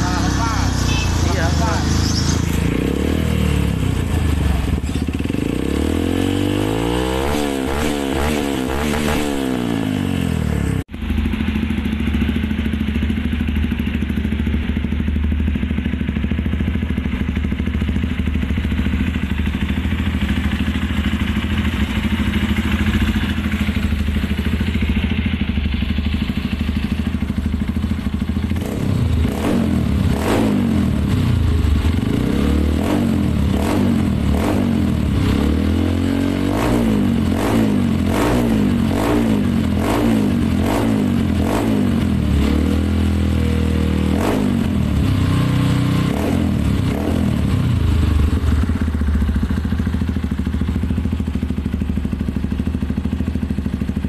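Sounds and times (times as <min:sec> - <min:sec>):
dirt bike engine revving: 0:00.0 - 0:12.0, 0:28.5 - 0:48.9
dirt bike engine idling: 0:00.0 - 0:36.1, 0:36.9 - 0:54.0.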